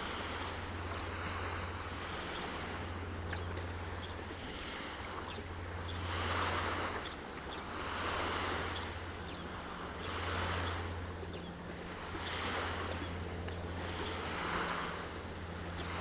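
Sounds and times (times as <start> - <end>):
small waves washing ashore: 0.0 - 16.0
steady low hum: 0.0 - 16.0.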